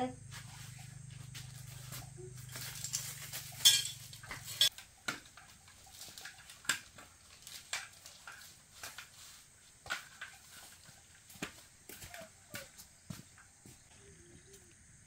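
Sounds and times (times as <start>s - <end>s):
small hard objects clinking: 1.6s - 10.9s.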